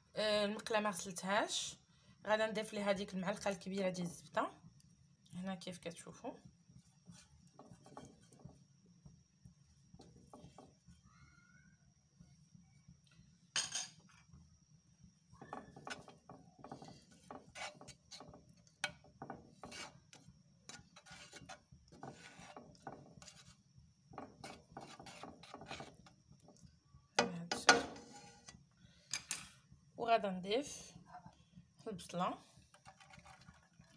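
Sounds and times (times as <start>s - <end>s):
spoon scraping frying pan: 15.7s - 26.5s, 27.2s - 28.6s.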